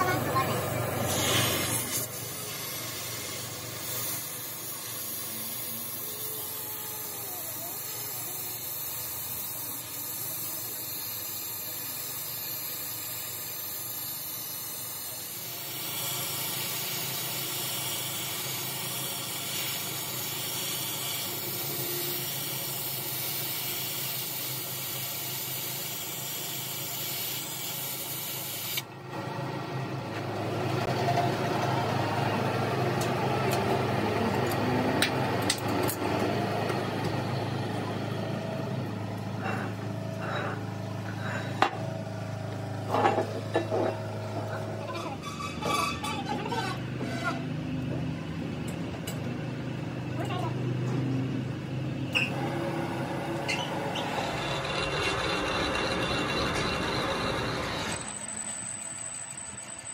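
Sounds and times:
gas torch flame hissing: 0:00.0 - 0:28.9.

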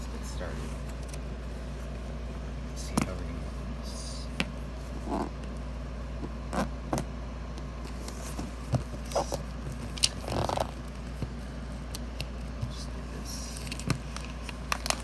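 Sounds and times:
steady low hum: 0:00.0 - 0:15.0
plastic mailer rustling: 0:13.2 - 0:15.0.

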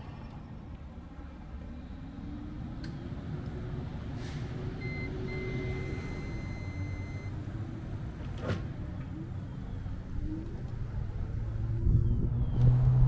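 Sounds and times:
vehicle engine rumbling: 0:00.0 - 0:13.0
electronic beep tone: 0:04.8 - 0:07.3.

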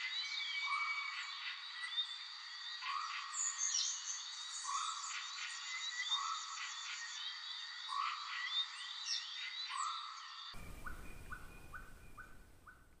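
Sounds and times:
animal chirping calls: 0:10.6 - 0:13.0.

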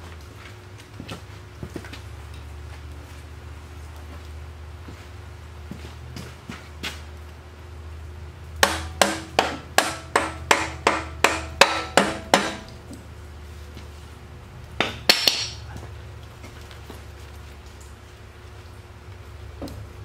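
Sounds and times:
hammer striking steel: 0:08.6 - 0:12.8, 0:14.8 - 0:15.6.

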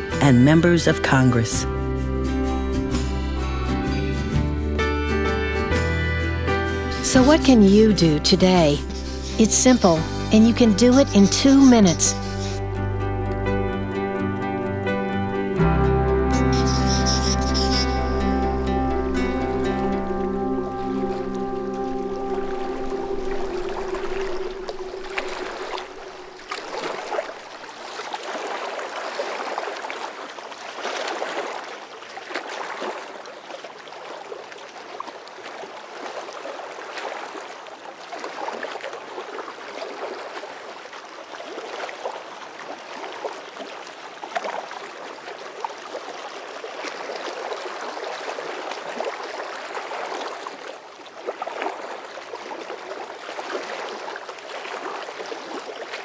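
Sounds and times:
river water rushing: 0:15.6 - 0:56.0.

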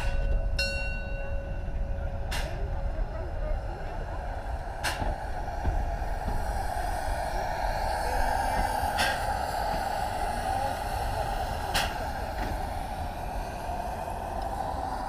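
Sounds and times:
steam locomotive hiss and rumble: 0:00.0 - 0:15.0
short sharp steam bursts: 0:04.1 - 0:15.0.

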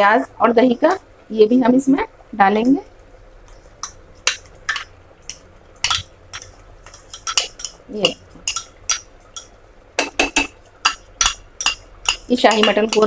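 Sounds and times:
spoon scraping a pot: 0:05.8 - 0:13.0.

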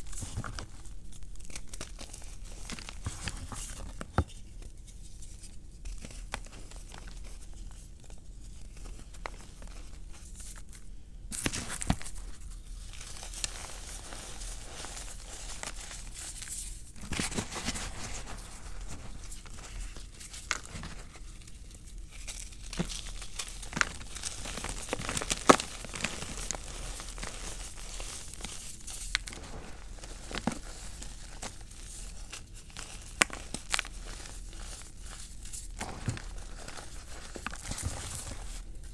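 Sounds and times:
chalk crunching and crackling: 0:11.4 - 0:38.9.

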